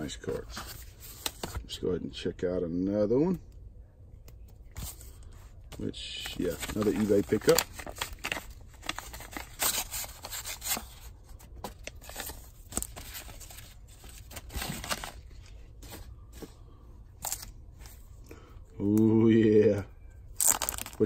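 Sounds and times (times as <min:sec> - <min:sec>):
paper envelope rustling: 0:04.8 - 0:18.0.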